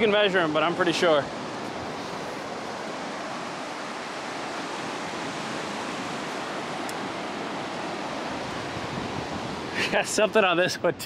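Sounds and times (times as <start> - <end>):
ocean surf breaking on beach: 0.0 - 11.0.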